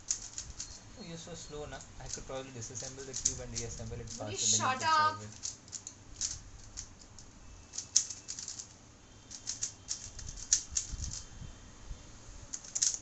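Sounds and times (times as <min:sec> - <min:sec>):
plastic puzzle cube clicking: 0:00.0 - 0:00.8, 0:02.1 - 0:04.2, 0:05.3 - 0:08.7, 0:09.3 - 0:11.3, 0:12.5 - 0:13.0.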